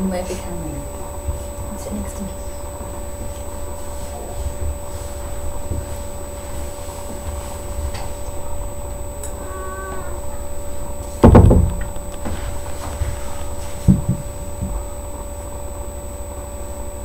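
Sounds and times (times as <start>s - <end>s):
steady low hum: 0.0s - 17.0s
thin high whine: 0.0s - 17.0s
loud thump: 11.2s - 12.4s.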